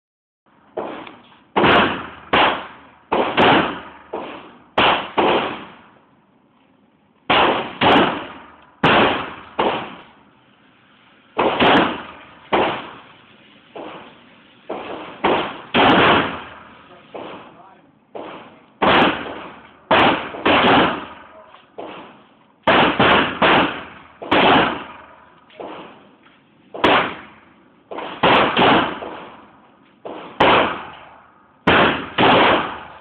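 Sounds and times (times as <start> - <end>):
pistol shots echoing indoors: 30.1 - 33.0.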